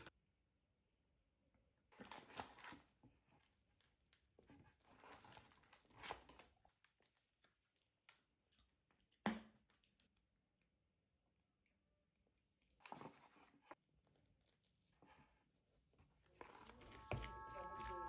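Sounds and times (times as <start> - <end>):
rustling of paper and cardboard: 4.4 - 7.7.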